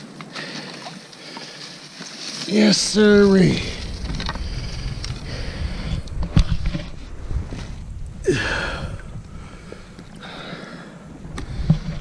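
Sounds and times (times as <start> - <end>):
low rumble: 2.7 - 12.0
short breath: 8.2 - 12.0.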